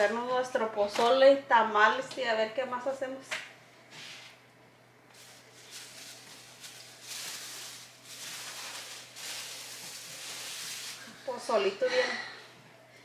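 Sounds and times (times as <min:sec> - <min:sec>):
plastic sheet rustling and crinkling: 0:05.1 - 0:11.4.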